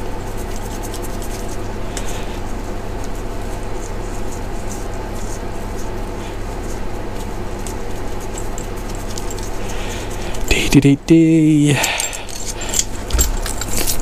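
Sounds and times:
steady low hum: 0.0s - 14.0s
metal clicks and scrapes: 11.9s - 14.0s.

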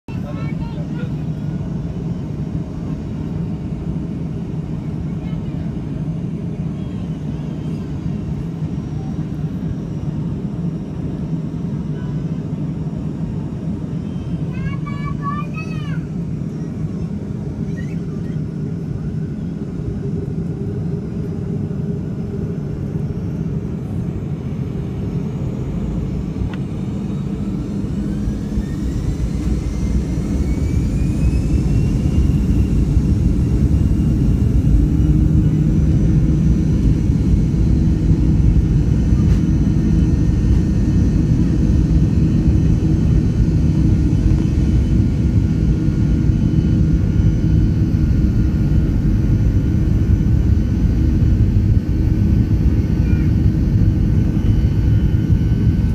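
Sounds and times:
jet engines spooling up: 16.0s - 55.9s.

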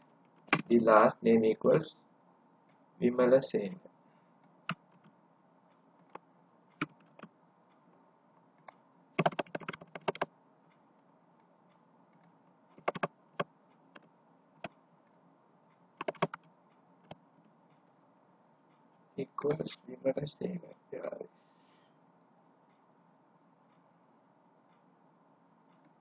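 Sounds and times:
keyboard typing: 0.3s - 0.8s, 4.6s - 5.1s, 6.8s - 7.3s, 8.6s - 10.3s, 12.2s - 14.7s, 16.0s - 17.2s.

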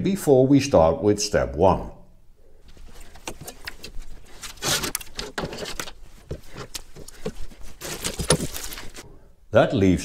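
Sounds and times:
light knocks and clatter of parts: 2.6s - 9.0s
short rustles: 2.6s - 9.1s.

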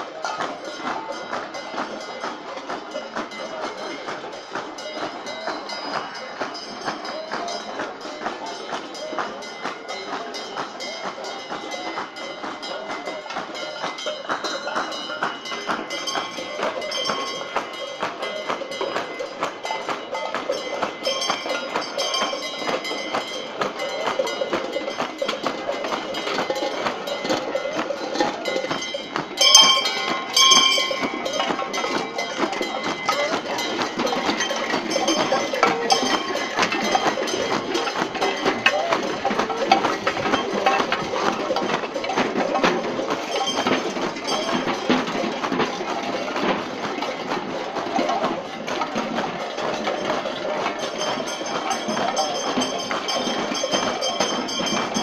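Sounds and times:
bells and metal percussion: 0.0s - 55.0s
crowd voices: 0.0s - 55.0s
loud bell ringing: 0.0s - 55.0s.

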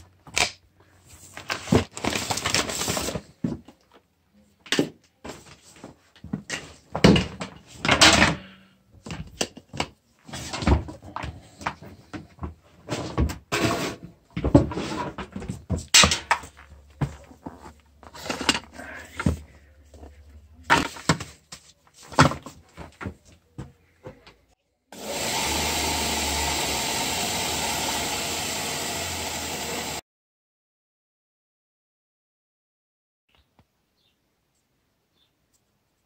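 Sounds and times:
grinder and sander humming: 25.0s - 30.0s.

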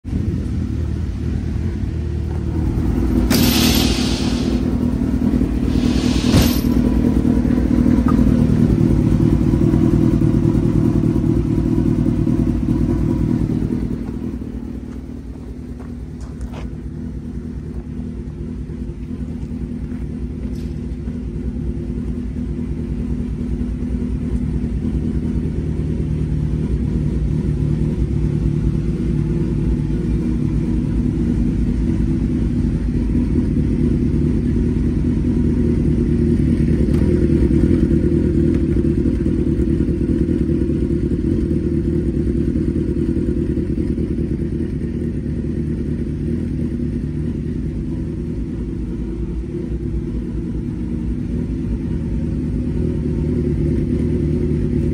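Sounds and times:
large engine idling: 0.0s - 54.9s
metal clatter: 3.2s - 7.2s.

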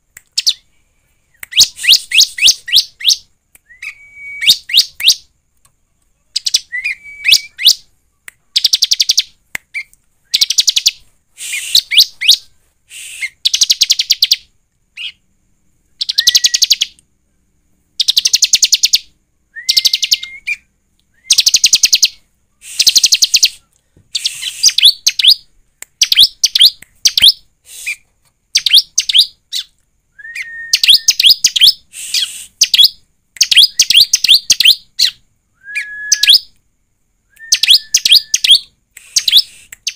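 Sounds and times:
bird singing rapid high trills: 16.0s - 17.0s, 18.0s - 29.7s, 30.4s - 35.2s, 37.4s - 39.9s.

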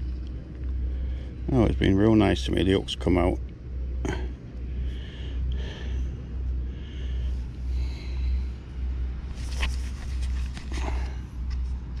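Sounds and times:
brief rustles: 9.3s - 11.8s.

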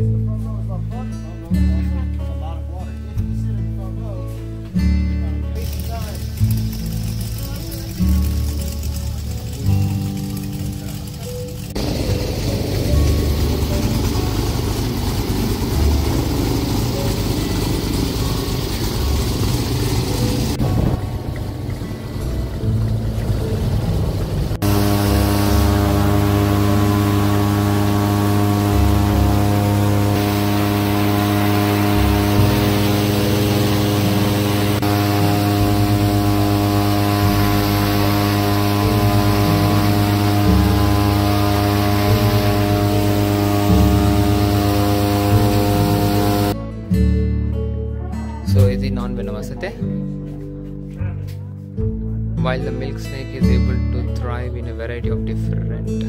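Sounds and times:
airboat engine low drone: 0.0s - 47.8s
higher hiss: 24.6s - 46.6s.

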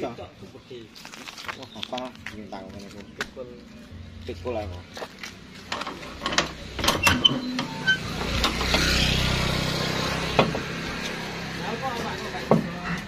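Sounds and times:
motor vehicle running: 1.6s - 13.0s
sharp knocks and clicks: 10.3s - 10.7s.

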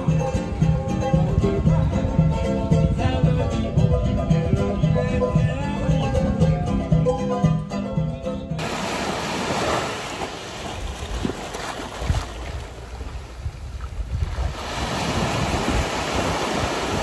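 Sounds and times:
wind buffeting microphone: 0.0s - 7.0s, 8.6s - 17.0s
background music: 0.0s - 8.6s
rushing water: 8.6s - 17.0s.

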